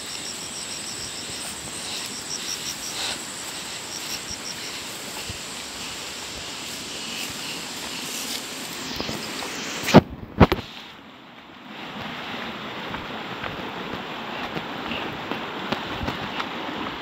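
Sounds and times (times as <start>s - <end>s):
insects chirping: 0.0s - 9.8s
steady background hiss: 0.0s - 17.0s.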